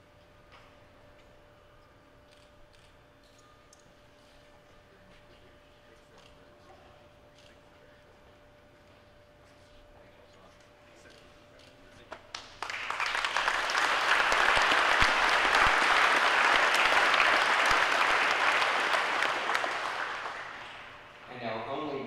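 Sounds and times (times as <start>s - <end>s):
crowd applause: 12.4s - 21.2s.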